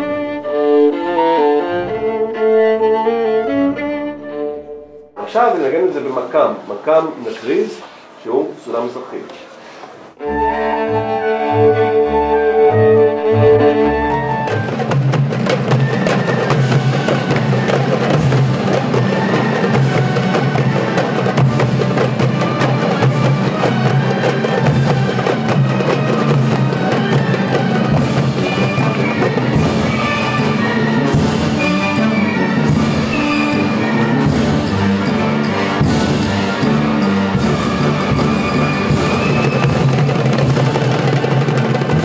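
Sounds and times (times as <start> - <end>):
bowed string melody: 0.0 - 7.8, 8.7 - 42.0
pitched instruments: 0.0 - 42.0
hand drums striking fast: 14.5 - 35.1, 35.7 - 42.0.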